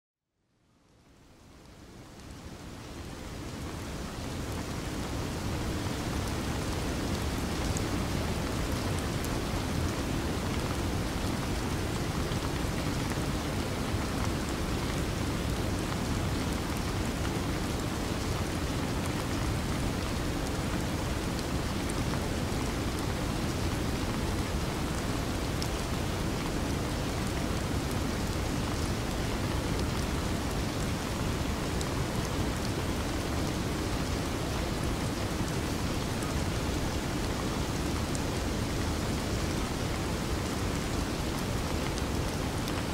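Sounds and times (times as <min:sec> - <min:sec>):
steady rain-like rushing noise: 0:00.6 - 0:42.9.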